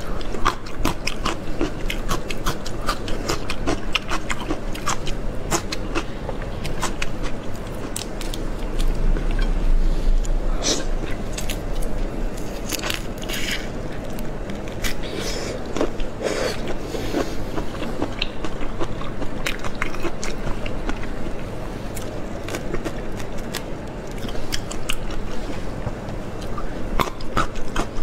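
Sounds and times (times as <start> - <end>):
chewing shrimp shells: 0.0 - 9.4.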